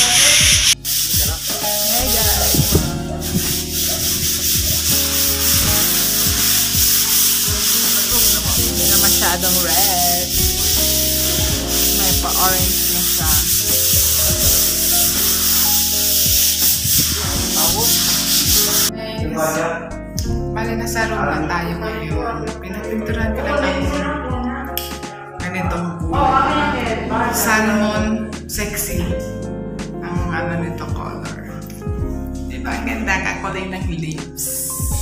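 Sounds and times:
sandpaper rasping on wall: 0.0s - 18.9s
background music: 0.0s - 35.0s.

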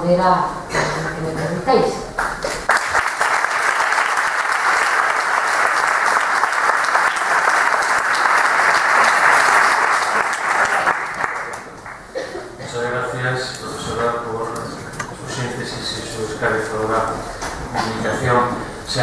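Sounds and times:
audience applauding: 2.2s - 12.2s.

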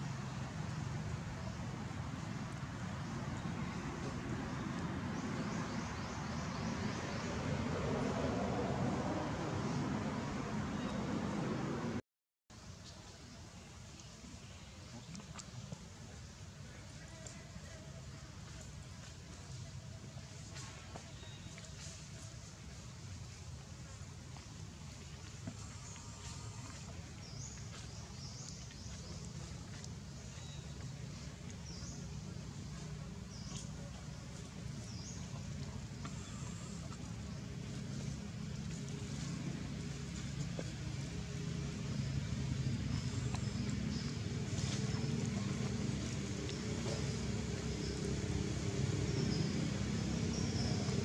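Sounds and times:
low engine drone: 0.0s - 12.0s, 23.4s - 51.0s
steady low rumble: 21.4s - 51.0s.

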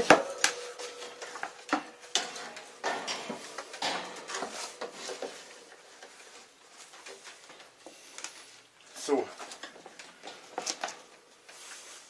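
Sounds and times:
cage parts knocking and rattling: 0.0s - 6.4s.

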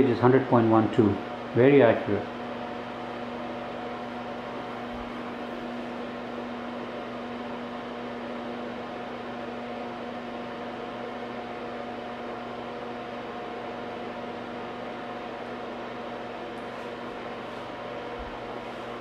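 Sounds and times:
two-tone electrical hum: 0.0s - 19.0s.

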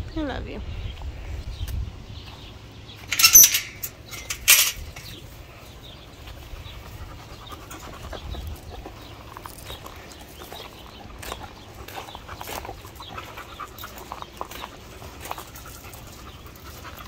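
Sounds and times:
faint animal panting: 5.7s - 17.0s.

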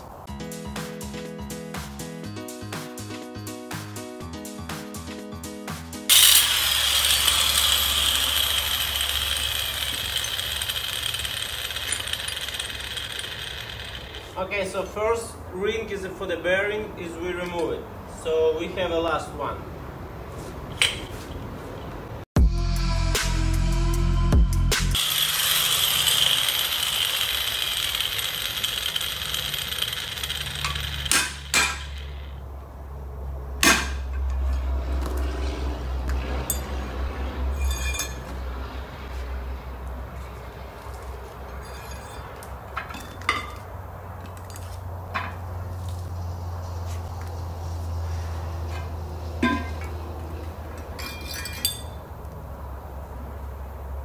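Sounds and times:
background music: 0.3s - 6.1s, 22.4s - 25.0s
angle grinder spinning down: 6.1s - 14.4s, 24.9s - 32.4s.

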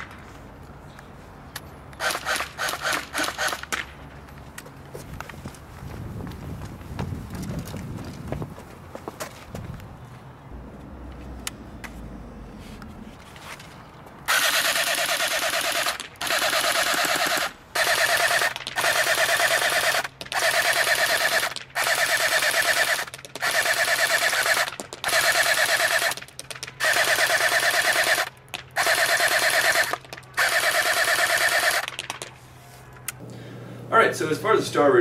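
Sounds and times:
electric airsoft rifle firing bursts: 2.0s - 3.8s, 14.3s - 32.2s.

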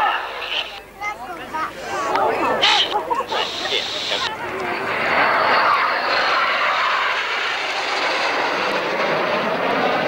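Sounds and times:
jets flying past: 2.0s - 10.0s.

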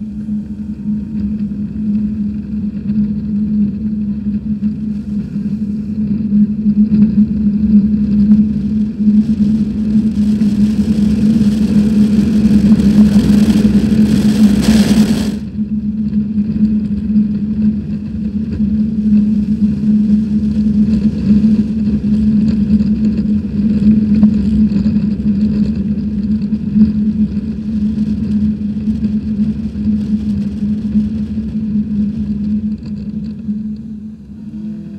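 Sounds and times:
steady motor hum: 0.0s - 34.9s
rough rushing noise: 7.9s - 15.6s.

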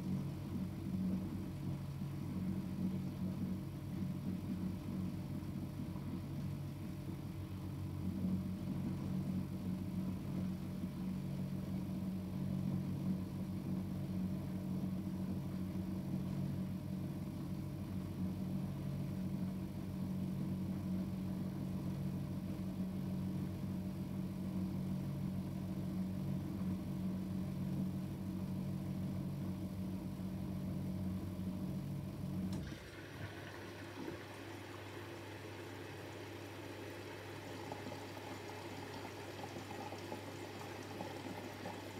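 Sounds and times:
washing machine humming: 0.0s - 41.9s
water hissing into drum: 32.6s - 41.9s.

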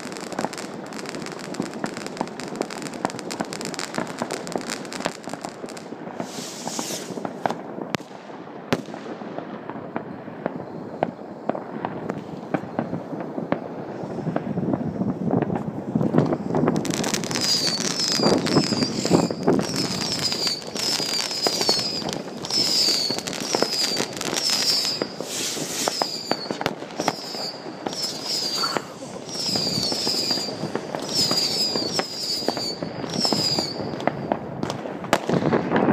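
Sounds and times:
fireworks bangs and crackling: 0.0s - 35.9s
sharp firecracker cracks: 16.2s - 35.9s
high falling whistle: 17.3s - 34.3s.

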